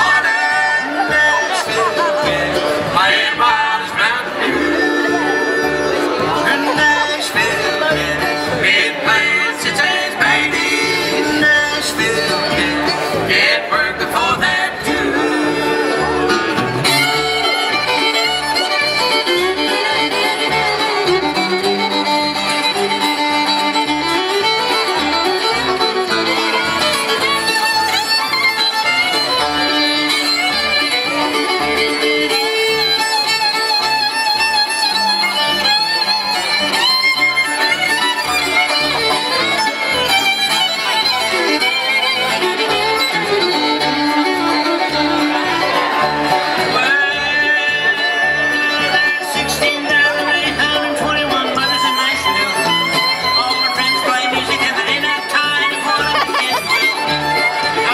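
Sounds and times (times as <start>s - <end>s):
acoustic guitar: 0.0s - 57.9s
banjo: 0.0s - 57.9s
fiddle lead: 0.0s - 57.9s
mandolin: 0.0s - 57.9s
upright bass: 0.0s - 57.9s.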